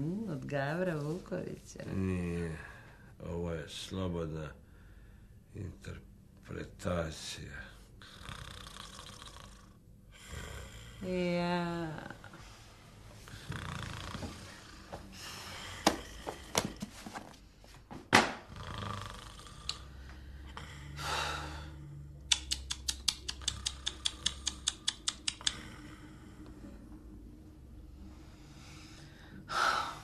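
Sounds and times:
man snoring and snorting: 8.0 - 11.1, 13.3 - 14.8, 18.4 - 22.0, 23.3 - 26.4
sharp clicks: 22.3 - 25.6.

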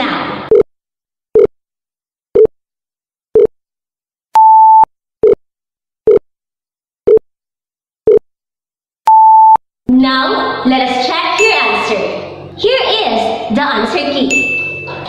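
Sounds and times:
short low beeps: 4.4 - 5.4, 9.1 - 9.6.

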